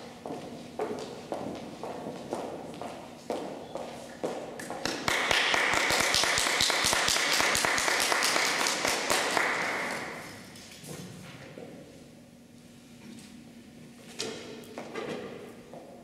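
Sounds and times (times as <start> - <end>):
high-heeled footsteps on parquet: 0.2 - 4.4
audience applauding: 4.8 - 10.2.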